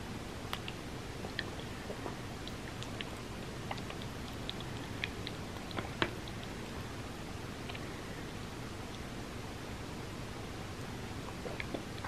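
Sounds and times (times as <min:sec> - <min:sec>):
wet mouth clicks: 0:00.5 - 0:06.5, 0:11.3 - 0:12.0
close chewing: 0:00.5 - 0:06.6.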